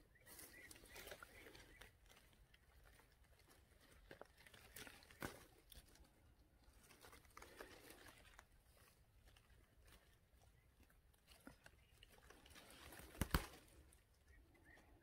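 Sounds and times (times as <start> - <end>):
rustling bramble leaves: 0.0 - 15.0
small snaps and clicks: 12.9 - 14.0.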